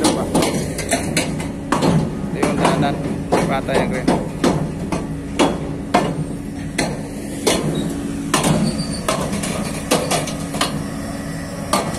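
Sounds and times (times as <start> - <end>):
crane engine humming: 0.0 - 11.9
steel crane tracks clanking: 0.0 - 11.9.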